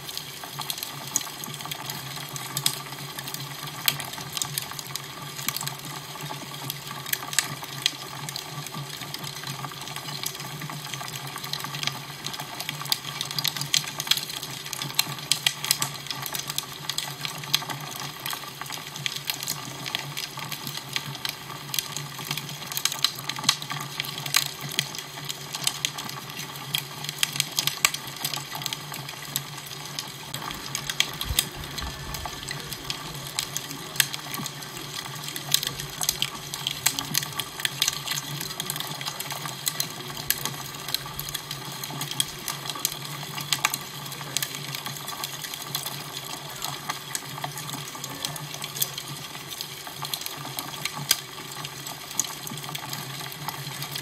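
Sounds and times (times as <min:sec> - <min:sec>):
fire crackling and popping: 0:00.0 - 0:54.0
low steady hum: 0:30.3 - 0:37.6.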